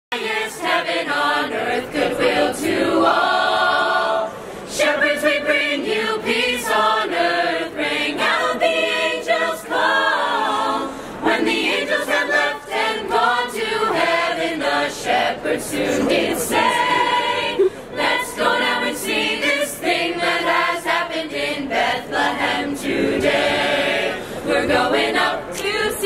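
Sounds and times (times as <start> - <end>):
youth choir singing a cappella: 0.1 - 26.0
singers' breaths: 4.2 - 4.8, 10.7 - 11.7, 15.8 - 18.2, 24.0 - 24.8.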